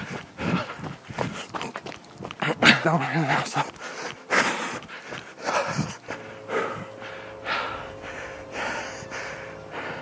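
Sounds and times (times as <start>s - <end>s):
man breathing hard: 0.0s - 1.6s, 3.7s - 10.0s.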